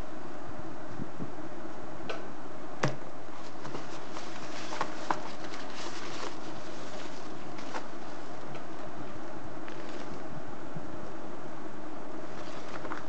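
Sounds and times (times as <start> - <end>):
steady background hiss: 0.0 - 13.0
tissue paper crinkling: 3.3 - 10.2, 12.2 - 13.0.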